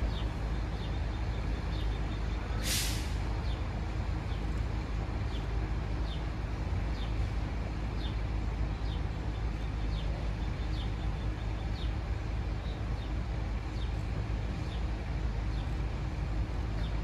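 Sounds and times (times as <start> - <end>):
steady low rumble: 0.0 - 17.0.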